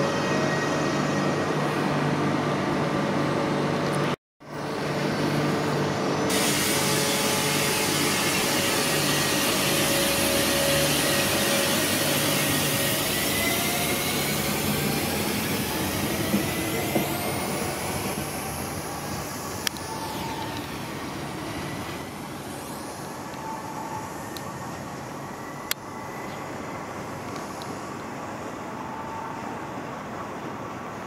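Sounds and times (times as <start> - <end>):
train rumbling past: 0.0 - 31.0
rising motor whine: 4.7 - 26.2.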